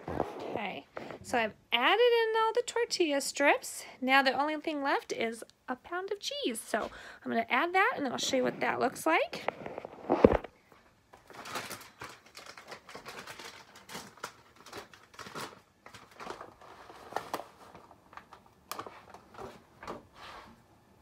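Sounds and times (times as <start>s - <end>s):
shredded cheese crinkling and tapping: 11.1s - 16.5s.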